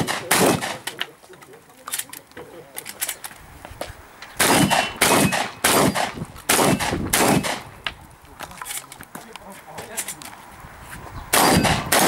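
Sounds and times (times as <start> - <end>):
shotgun shots with echo: 0.0 - 1.0, 4.4 - 7.7, 11.3 - 12.0.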